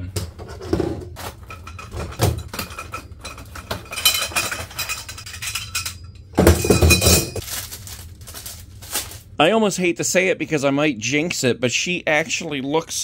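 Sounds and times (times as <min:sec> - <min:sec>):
metal poles knocking and clinking: 0:01.2 - 0:07.4
cardboard packaging handled: 0:07.4 - 0:09.3.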